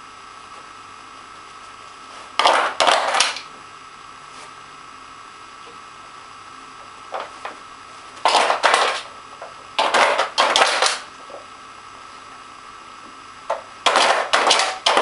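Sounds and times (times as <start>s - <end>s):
plastic puzzle toy clattering: 8.3s - 9.0s.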